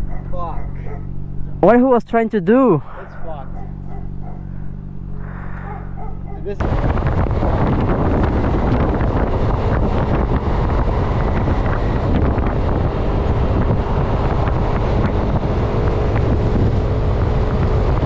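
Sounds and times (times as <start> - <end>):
motorcycle engine: 0.0 - 18.0
road noise: 0.0 - 18.0
wind rushing over microphone: 5.6 - 18.0.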